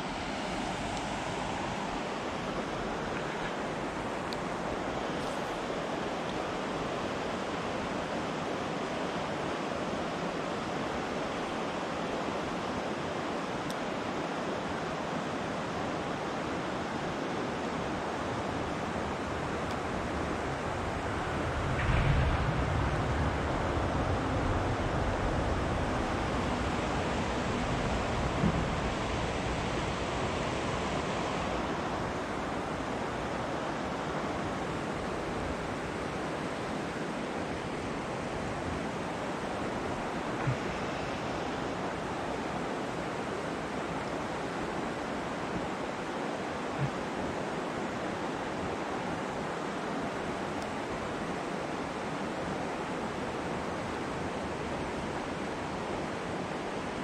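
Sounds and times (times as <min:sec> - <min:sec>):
stream flowing: 0:00.0 - 0:57.0.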